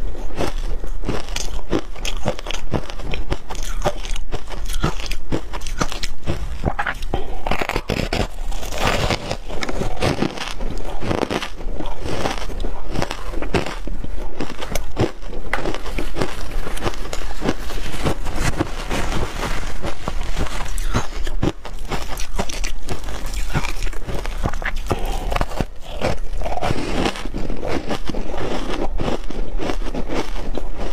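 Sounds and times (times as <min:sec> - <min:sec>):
shaved ice crunching in chewing: 0:00.0 - 0:30.9.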